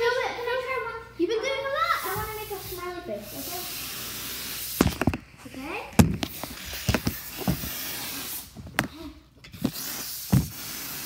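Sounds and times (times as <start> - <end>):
canned air duster spraying: 1.9 - 5.2, 6.0 - 8.9, 9.5 - 11.0.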